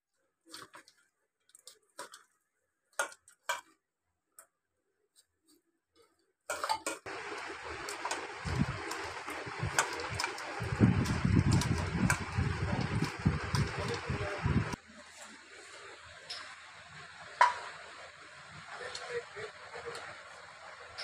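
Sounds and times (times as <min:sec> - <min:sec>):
steady hiss: 0:07.1 - 0:21.0.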